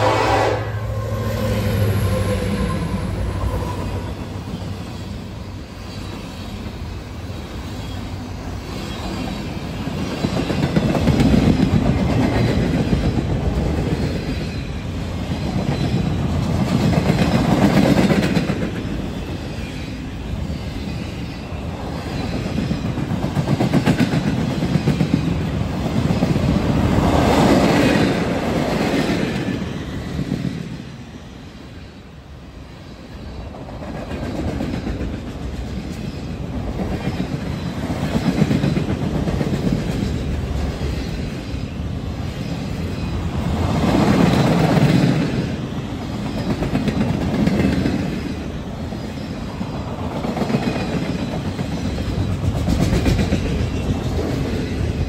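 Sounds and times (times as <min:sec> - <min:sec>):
train horn: 0:00.0 - 0:04.4
diesel locomotives rumbling: 0:00.0 - 0:55.0
train wheels clacking on rails: 0:07.7 - 0:30.8, 0:33.4 - 0:55.0.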